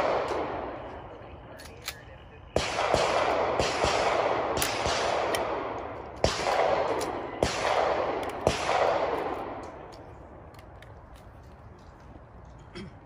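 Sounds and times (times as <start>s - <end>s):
pistol shots with rolling echo: 0.0s - 10.3s.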